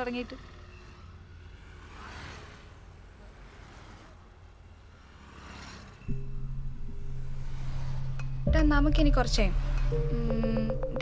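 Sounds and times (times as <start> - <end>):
traffic rumble: 0.0 - 11.0
vehicles swishing by: 0.0 - 11.0
background music low note: 6.1 - 11.0.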